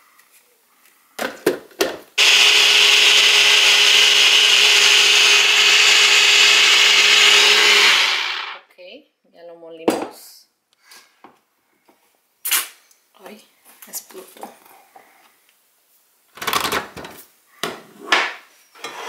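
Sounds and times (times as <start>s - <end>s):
blender motor and blades whirring: 2.2s - 8.6s.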